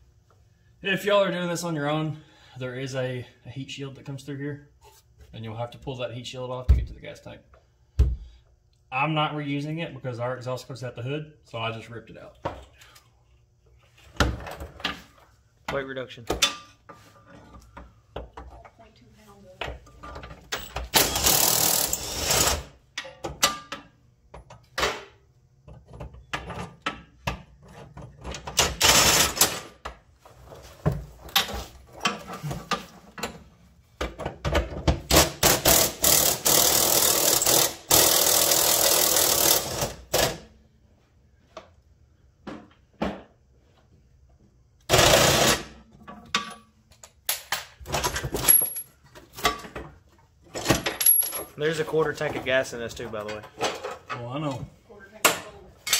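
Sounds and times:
impact wrench hammering: 0:35.1 - 0:40.4
tools and metal clanking: 0:45.9 - 0:47.0, 0:47.9 - 0:54.6, 0:55.4 - 0:55.9.

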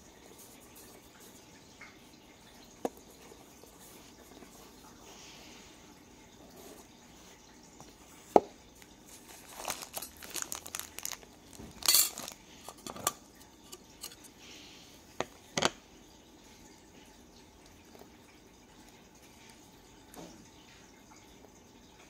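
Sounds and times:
plastic wrap crinkling: 0:09.1 - 0:12.8
metal stand clinking: 0:11.8 - 0:13.1.

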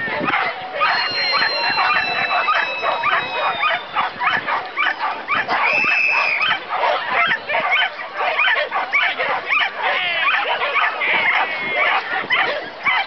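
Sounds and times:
dogs barking: 0:00.1 - 0:13.0
high steady beep: 0:00.8 - 0:04.1.

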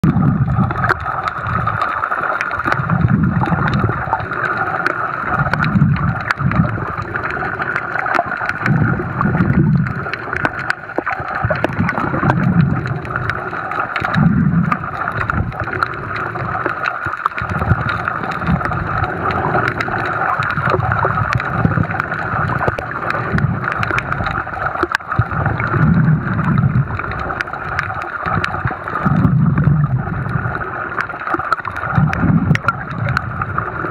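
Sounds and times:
low gurgling rumble: 0:00.0 - 0:33.9
underwater clicks: 0:00.0 - 0:33.9.

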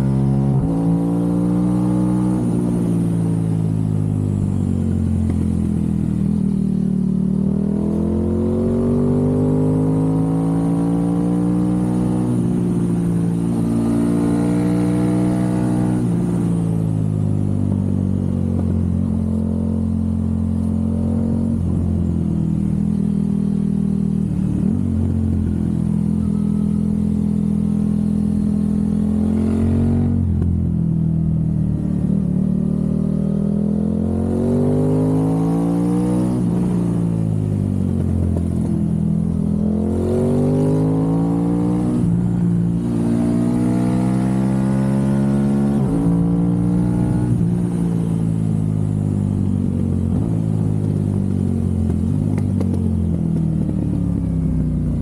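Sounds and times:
motorcycle engine riding: 0:00.0 - 0:55.0.

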